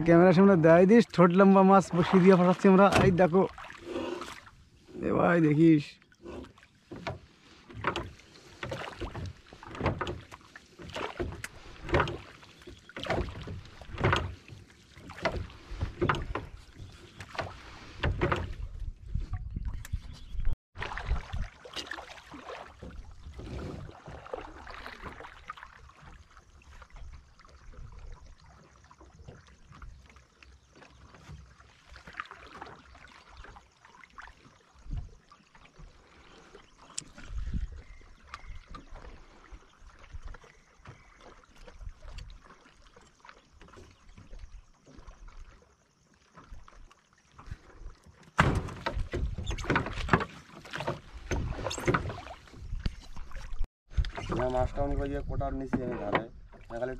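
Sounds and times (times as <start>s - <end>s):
faint water and handling noise: 0.0s - 56.9s.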